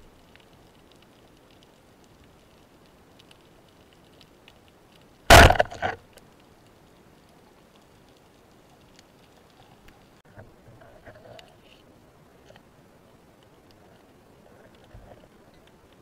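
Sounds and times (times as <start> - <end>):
speargun firing crack: 5.3 - 6.0.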